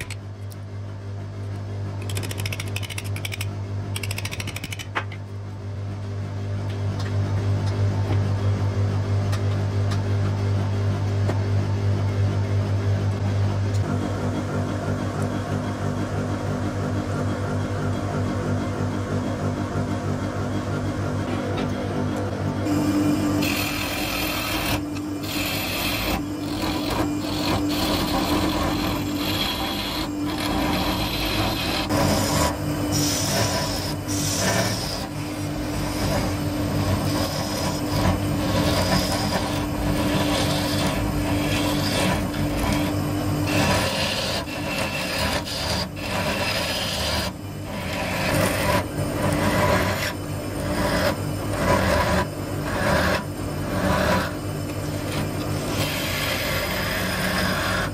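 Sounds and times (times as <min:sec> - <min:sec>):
turning tool scraping wood: 0:00.0 - 0:00.2, 0:02.0 - 0:04.9, 0:23.4 - 0:57.9
wood lathe humming: 0:02.0 - 0:04.8, 0:22.6 - 0:57.9.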